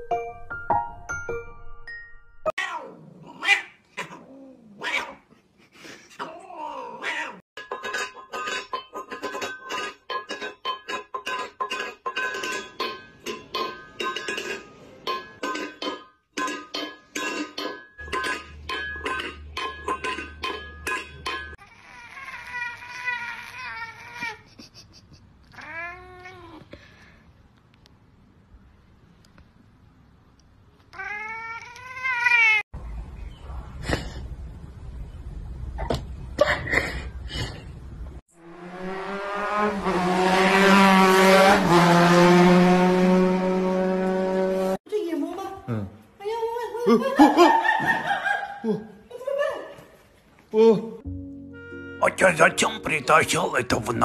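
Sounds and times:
cat meowing: 2.6 - 5.2, 6.2 - 7.4, 25.5 - 26.6, 30.9 - 32.6.

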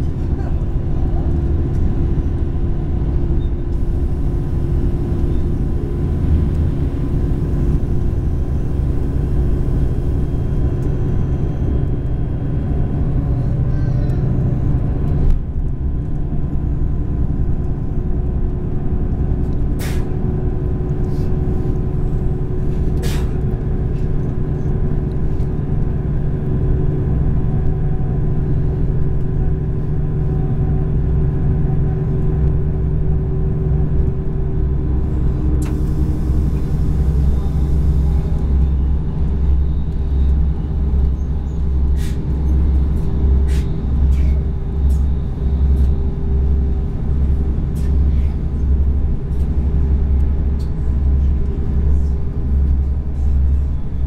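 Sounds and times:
train wheels rumbling: 0.0 - 54.0.

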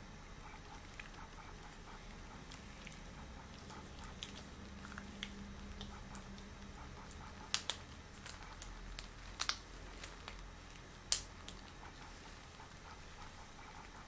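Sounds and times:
latex gloves snapping: 3.6 - 11.8.

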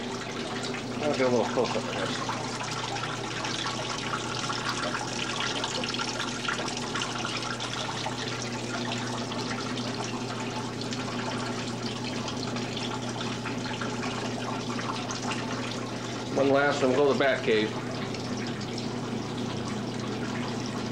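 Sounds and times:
water trickling and splashing: 0.0 - 20.9.

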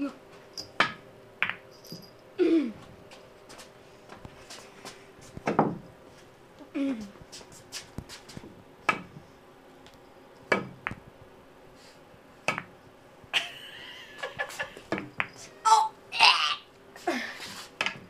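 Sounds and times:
billiard balls clacking: 0.8 - 1.7.

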